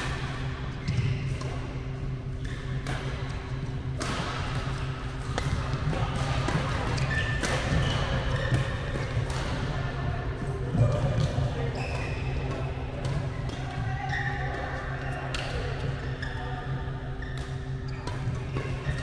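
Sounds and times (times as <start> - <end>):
rackets hitting shuttlecock: 0.0 - 9.9, 10.6 - 15.8.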